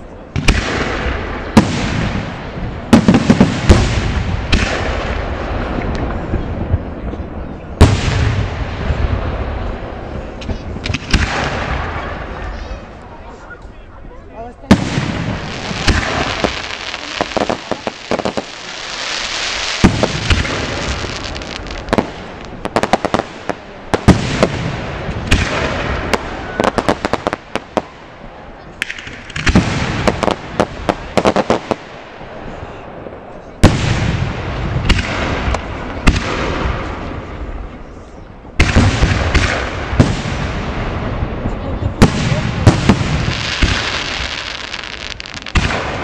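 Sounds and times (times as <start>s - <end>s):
fireworks bursting with bangs: 0.3s - 13.0s, 14.7s - 46.0s
crackling pops: 14.7s - 27.9s
fireworks hiss: 14.9s - 23.6s.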